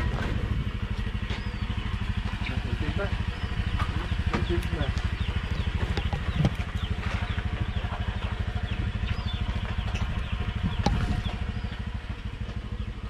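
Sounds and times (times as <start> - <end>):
motorcycle engine putter: 0.0 - 12.8.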